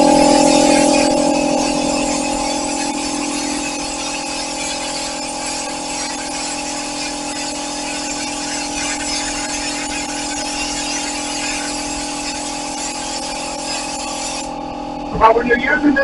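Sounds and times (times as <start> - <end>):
spray gun hissing: 0.0 - 14.5
steady whistling tones: 0.0 - 16.0.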